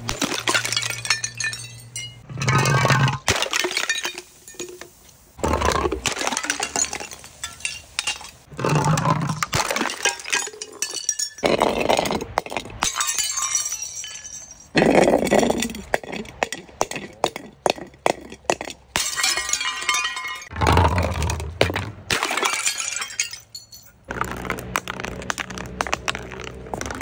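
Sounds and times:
glass shards clinking: 0.0 - 5.0, 6.0 - 16.4, 19.0 - 20.5, 22.1 - 24.5
glass smashing on concrete: 0.0 - 5.0, 5.8 - 8.5, 9.3 - 17.8, 18.5 - 27.0.

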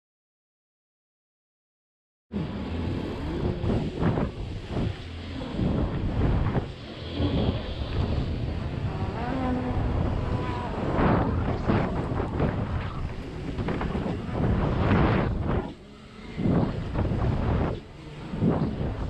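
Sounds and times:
wind buffeting microphone: 2.4 - 19.0
bike tyres rumbling on dirt: 2.5 - 15.8.

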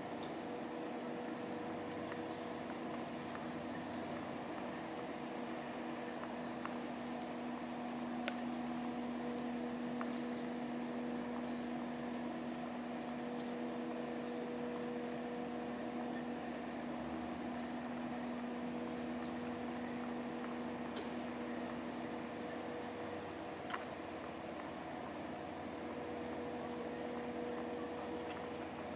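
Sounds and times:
continuous hiss: 0.0 - 28.9
mechanical hum with tones: 0.0 - 28.9
faint clicks: 5.3 - 8.5, 17.1 - 24.8.

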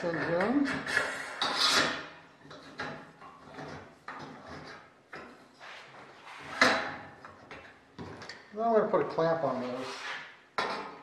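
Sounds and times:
hinge scraping along steel tube: 0.7 - 2.8, 5.6 - 6.9.

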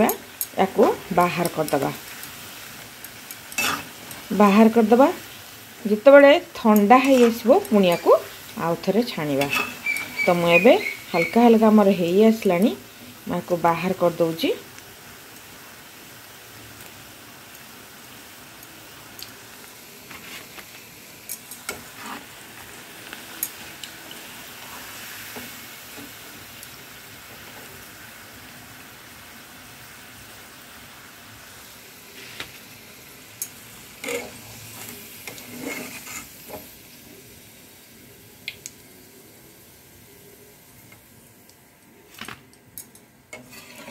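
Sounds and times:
fries sizzling in hot oil: 0.0 - 43.9
spoon clinking against pan: 3.0 - 4.3, 9.4 - 11.4.

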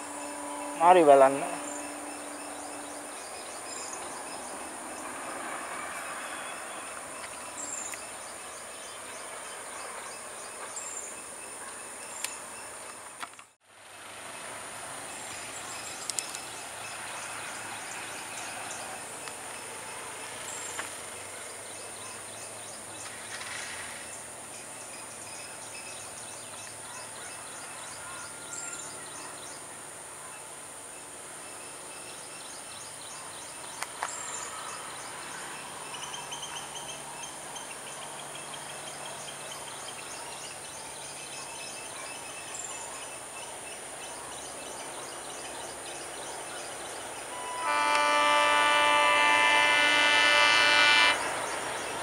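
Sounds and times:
high-pitched drone: 0.0 - 5.6
locomotive horn: 0.0 - 7.0, 47.2 - 52.0
diesel locomotive engine: 0.0 - 13.0, 13.7 - 29.9, 31.3 - 52.0.

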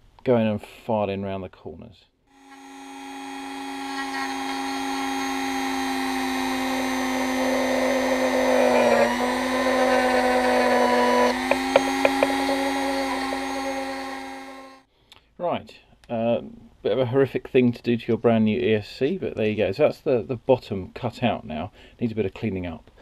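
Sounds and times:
rotary tool grinding whine: 2.4 - 14.9.

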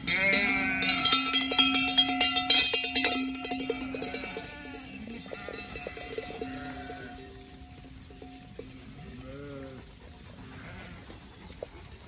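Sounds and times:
sheep bleating: 0.0 - 1.2, 3.6 - 7.6, 8.5 - 11.0
sheep bells clanking: 0.0 - 10.8.

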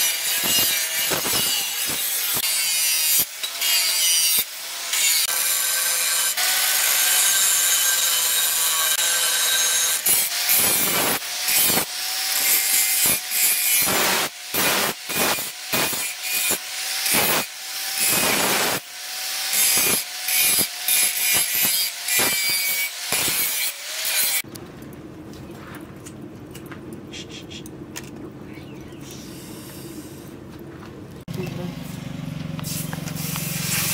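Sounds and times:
angle grinder grinding steel: 0.0 - 24.5, 31.8 - 33.9
low motor hum: 24.5 - 33.6.

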